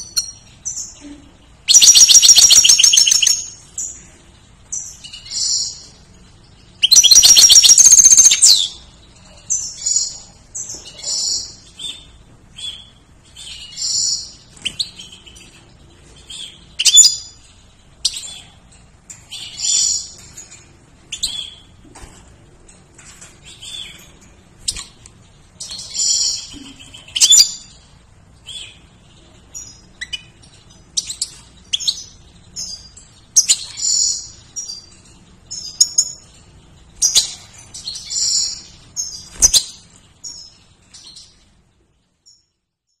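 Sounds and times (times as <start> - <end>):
goldfinch twittering and chirping: 1.7 - 3.6, 6.5 - 8.8.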